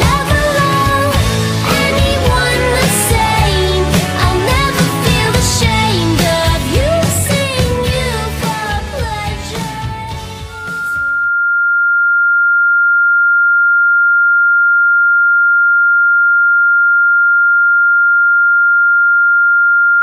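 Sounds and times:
pop song music: 0.0 - 11.3
high-pitched electronic tone: 10.6 - 14.7.

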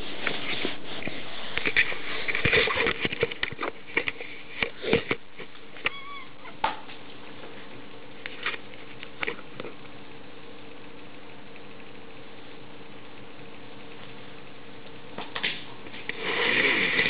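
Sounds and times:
breathy rustle near microphone: 0.0 - 5.1.

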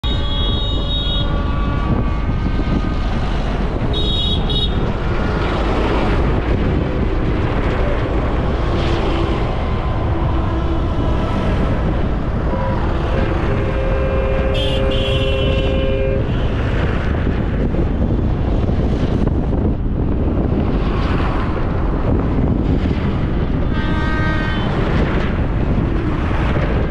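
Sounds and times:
two-tone horn blast: 0.0 - 4.9, 9.3 - 16.6, 23.6 - 25.4
tractors rumbling past: 0.0 - 19.4
short high horn toot: 12.5 - 16.4.

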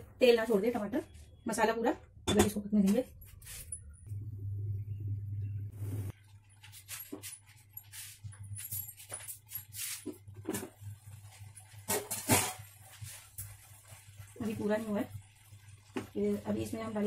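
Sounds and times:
low steady hum: 0.0 - 6.6
pots and utensils clinking: 9.0 - 14.0.

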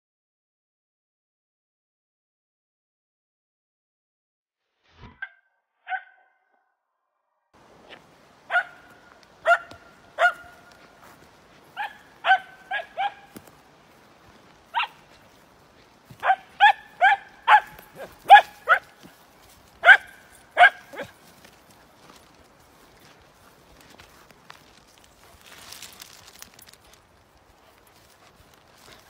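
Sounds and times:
dog barking: 5.8 - 6.3, 8.5 - 10.7, 11.8 - 13.4, 14.7 - 15.0, 16.2 - 19.0, 19.8 - 21.2.

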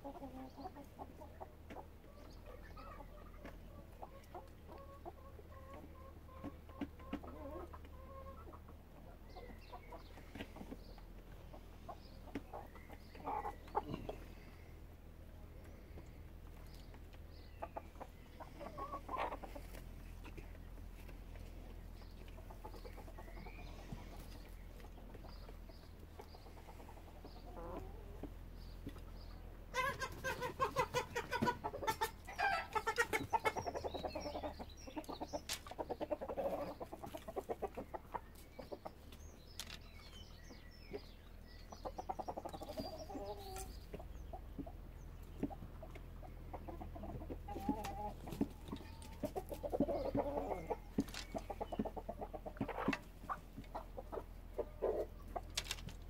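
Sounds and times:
chickens clucking: 0.0 - 56.0.

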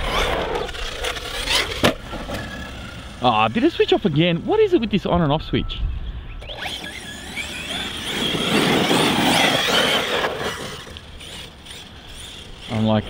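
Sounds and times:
tyre and chassis noise: 0.0 - 5.4, 6.4 - 13.0
electric motor whine: 6.4 - 13.0.

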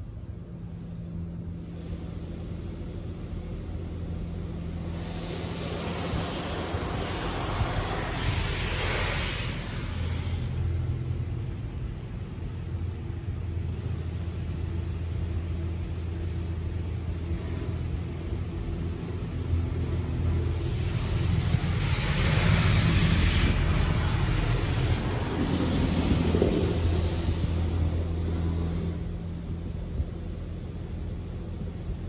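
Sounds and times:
car wash machinery hum: 0.0 - 32.0
water spray hissing: 4.6 - 11.0, 19.8 - 28.3.

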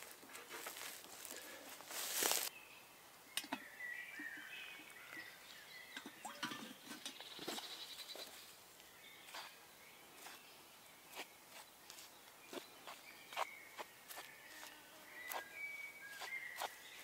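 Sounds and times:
rustle and scrape of wood and leaves: 0.0 - 2.5, 6.7 - 8.6, 11.1 - 17.0
birds singing: 1.3 - 17.0.

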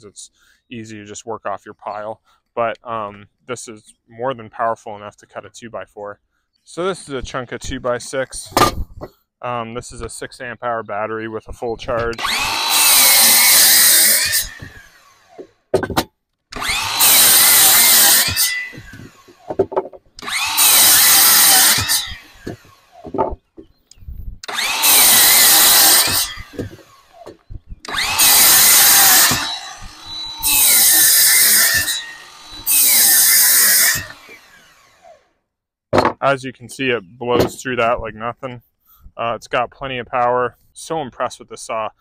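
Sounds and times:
miter saw cutting wood: 11.9 - 15.5, 16.5 - 23.7, 24.4 - 35.3.

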